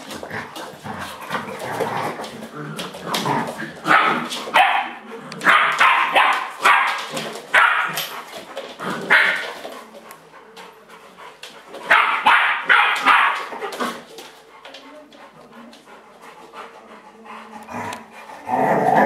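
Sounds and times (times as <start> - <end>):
puppy barking: 3.9 - 8.1, 11.9 - 13.5.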